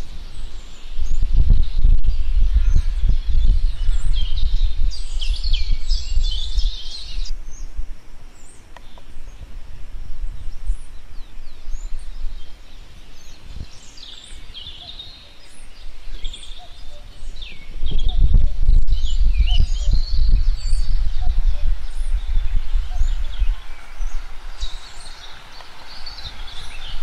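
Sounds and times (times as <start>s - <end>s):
birds chirping and calling: 0.0s - 9.6s, 10.2s - 27.0s
low rumble: 17.7s - 27.0s.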